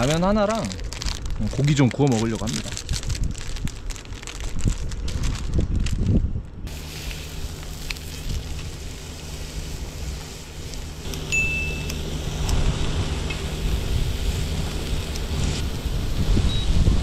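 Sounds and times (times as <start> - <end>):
beef sizzling on griddle: 6.7 - 17.0
steady low hum: 6.7 - 17.0.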